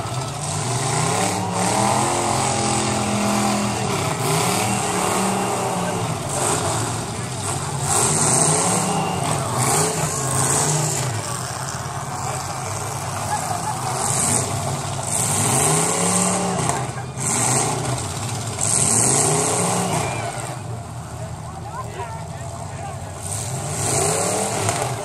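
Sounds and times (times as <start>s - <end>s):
car engines revving hard: 0.0s - 25.0s.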